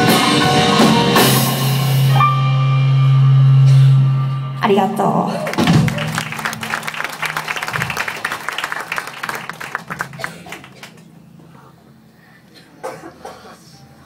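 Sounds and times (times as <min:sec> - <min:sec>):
audience clapping: 0:05.4 - 0:11.2.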